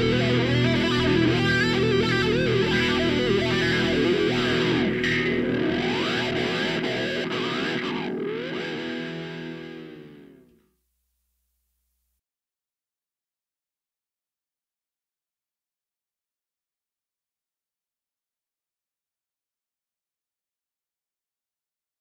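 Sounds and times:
rock music with electric guitar: 0.0s - 10.6s.

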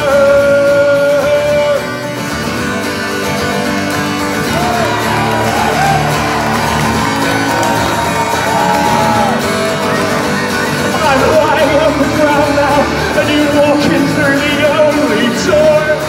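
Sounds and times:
acoustic guitar strummed: 0.0s - 16.0s
person singing: 10.6s - 16.0s.

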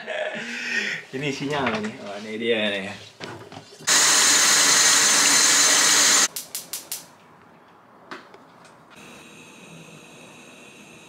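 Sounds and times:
gas stove burner hiss: 3.9s - 7.1s, 9.0s - 11.0s.

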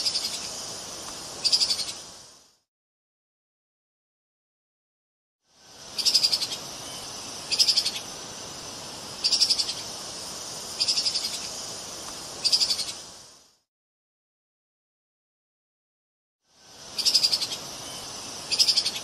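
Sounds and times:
steady faint hiss: 0.0s - 2.7s, 5.5s - 13.7s, 16.5s - 19.0s.

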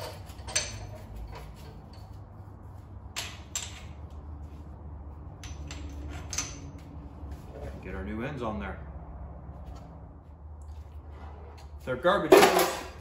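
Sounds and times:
metal tools knocking and clicking: 0.0s - 2.2s, 3.2s - 4.1s, 5.4s - 6.8s.

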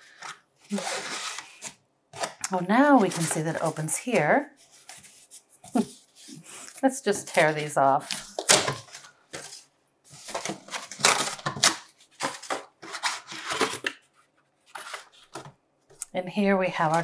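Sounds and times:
cardboard tearing and scraping: 0.1s - 3.8s, 7.2s - 13.9s.

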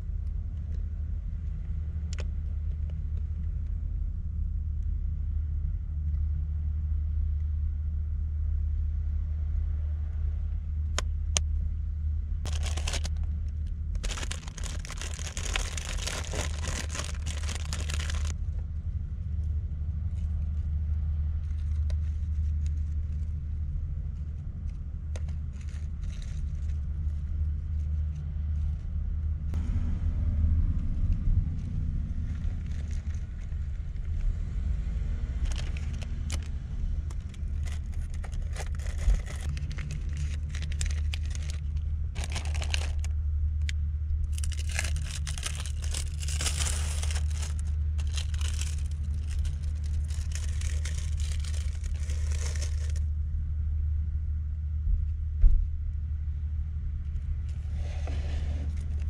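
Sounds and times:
steady low rumble: 0.0s - 59.0s
plastic packaging crinkling: 12.5s - 13.2s, 14.0s - 18.4s, 35.4s - 36.5s, 37.1s - 43.1s, 44.3s - 53.0s.

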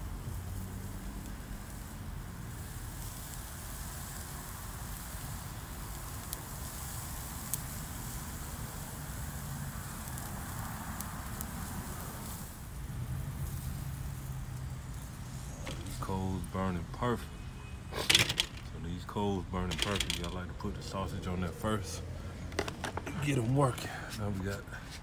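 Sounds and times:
sausages sizzling on a grill: 0.0s - 22.6s.

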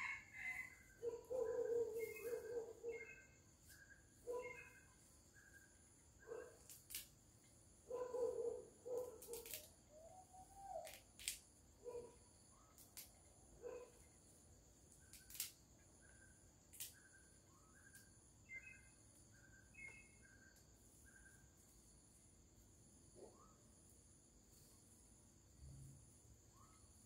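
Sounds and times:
soft repeated chirping: 0.0s - 22.3s, 26.4s - 27.0s
herb stems snapping by hand: 6.7s - 7.1s, 9.0s - 9.7s, 10.8s - 11.5s, 15.1s - 15.6s.

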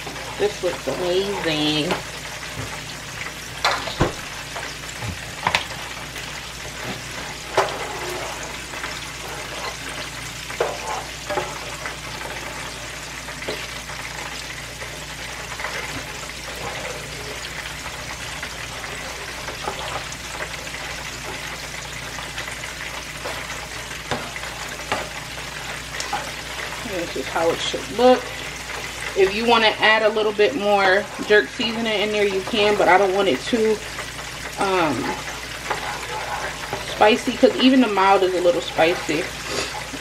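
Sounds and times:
chicken wings sizzling in oil: 0.0s - 40.0s
spoon stirring thick sauce: 35.1s - 37.7s, 38.6s - 40.0s.

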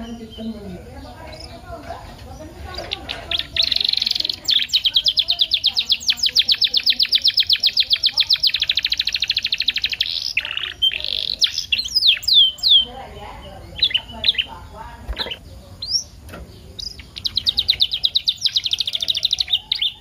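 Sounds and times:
canary singing: 0.0s - 20.0s.

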